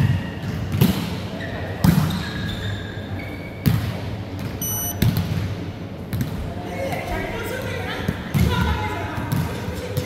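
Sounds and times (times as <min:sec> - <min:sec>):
shoe squeaks: 0:04.6 - 0:05.0.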